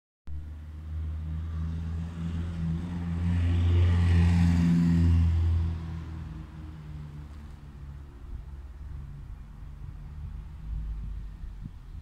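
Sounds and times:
vehicle engine humming: 0:00.3 - 0:12.0.

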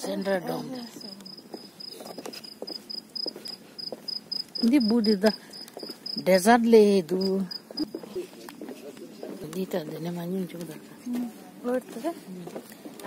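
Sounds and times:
cricket chirping: 0:00.6 - 0:08.0
person speaking: 0:04.5 - 0:11.4.

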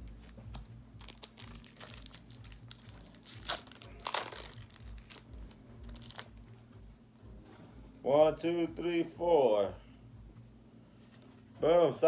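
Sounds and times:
foil ripping: 0:01.0 - 0:06.5
foil wrapper crinkling: 0:01.0 - 0:06.5.

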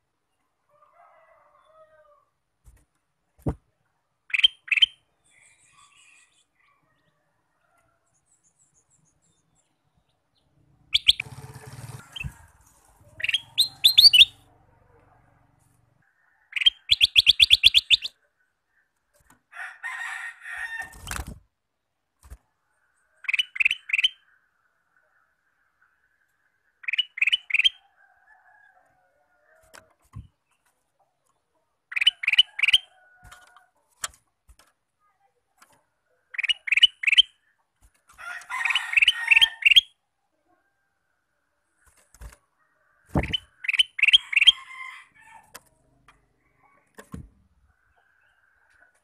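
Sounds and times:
bird trill: 0:04.3 - 0:06.4, 0:10.8 - 0:12.4, 0:13.1 - 0:14.4, 0:16.5 - 0:18.2, 0:26.8 - 0:27.8, 0:36.4 - 0:37.4, 0:43.2 - 0:44.8
scratchy bird call: 0:10.9 - 0:14.4.

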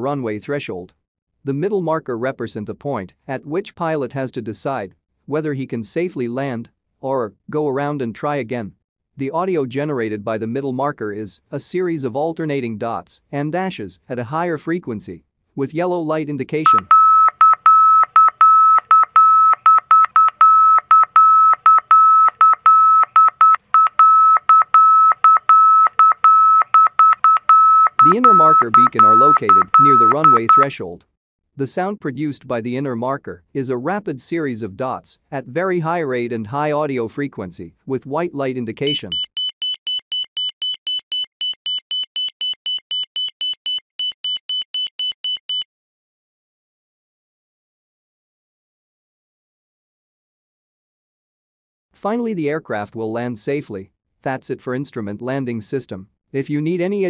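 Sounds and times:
rapid high-pitched beeps: 0:21.0 - 0:30.7, 0:38.9 - 0:45.7.

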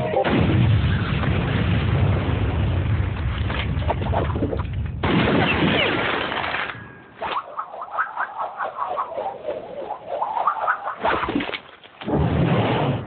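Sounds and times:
explosion boom and rumble: 0:00.2 - 0:06.3, 0:12.0 - 0:13.0
noisy sound: 0:06.8 - 0:13.0.

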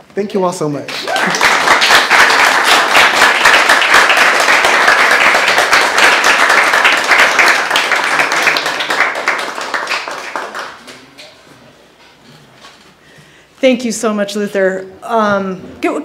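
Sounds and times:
audience applauding: 0:00.9 - 0:11.2.

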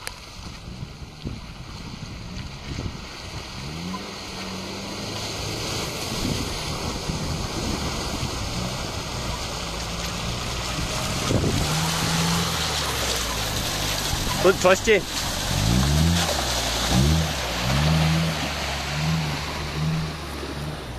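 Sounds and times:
off-road vehicle engine revving: 0:00.4 - 0:20.9.

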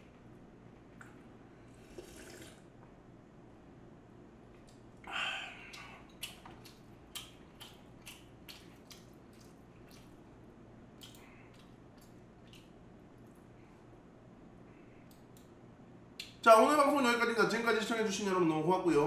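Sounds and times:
broth sipped from a bowl: 0:01.6 - 0:02.6
mouth clicks and smacks: 0:05.6 - 0:10.2, 0:10.9 - 0:13.4, 0:16.2 - 0:16.4.

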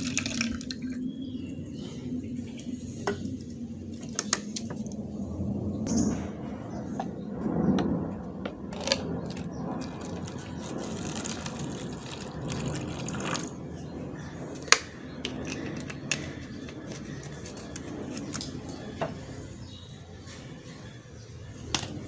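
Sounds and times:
liquid pouring into plastic cup: 0:00.0 - 0:01.0, 0:08.8 - 0:13.6.

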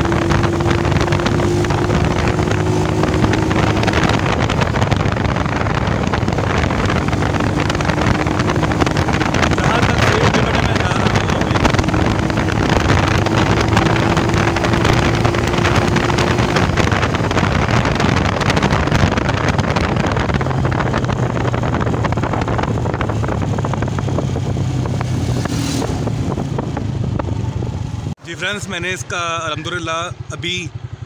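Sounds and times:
wind noise on microphone: 0:00.0 - 0:28.2
motorcycle engine running: 0:00.0 - 0:31.0.

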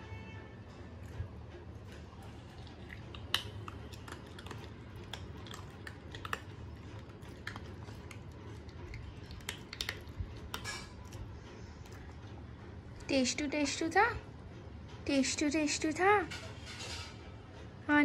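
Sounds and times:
dog crunching a treat: 0:01.8 - 0:12.5.

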